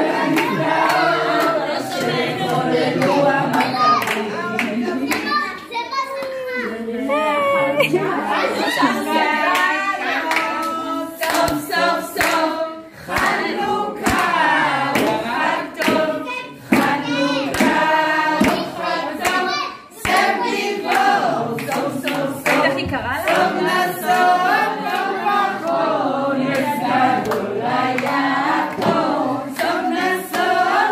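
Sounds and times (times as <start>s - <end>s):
adults and children singing: 0.0s - 30.9s
hands clapping: 0.3s - 6.4s, 9.5s - 12.5s, 13.1s - 23.5s, 26.4s - 30.5s.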